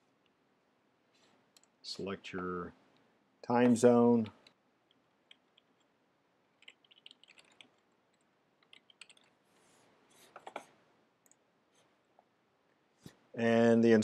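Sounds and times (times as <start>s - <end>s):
keyboard typing clicks: 6.6s - 9.3s, 10.3s - 11.4s.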